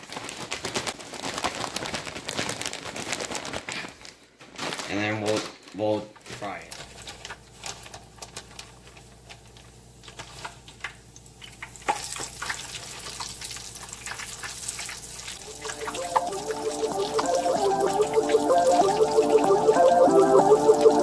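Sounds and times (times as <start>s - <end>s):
fish frying in oil: 9.8s - 15.4s
music: 15.4s - 21.0s.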